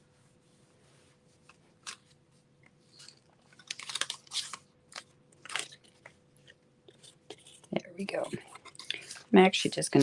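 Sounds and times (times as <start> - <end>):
card rustling and crackling: 2.9 - 9.3.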